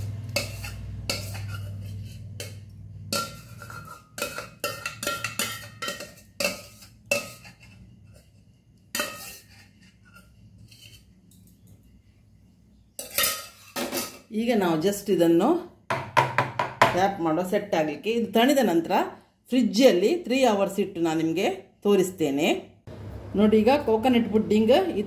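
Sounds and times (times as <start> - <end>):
metal pan and utensil clinking: 0.0 - 11.5, 13.0 - 14.3
low hum: 22.9 - 25.0.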